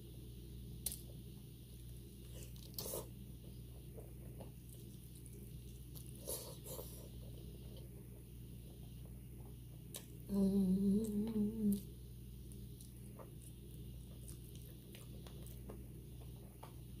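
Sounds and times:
woman humming while chewing: 10.2s - 12.0s.

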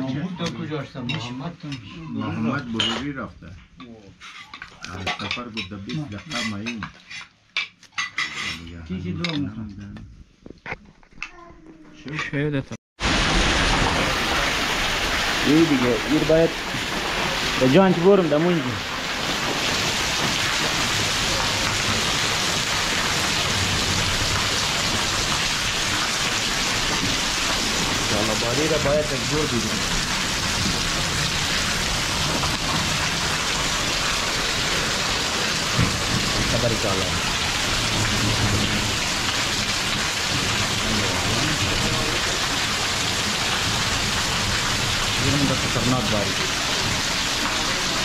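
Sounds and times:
heavy rain pouring: 13.0s - 48.0s.

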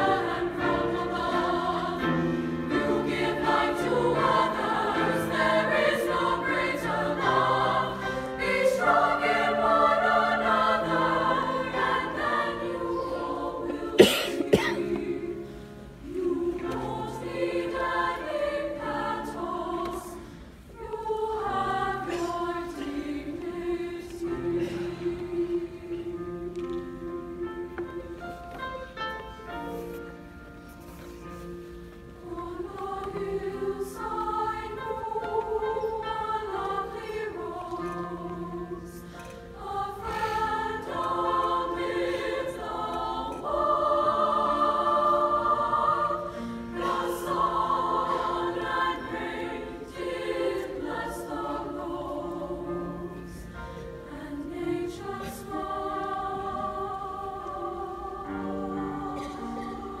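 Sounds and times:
women's choir singing harmony: 0.0s - 60.0s.

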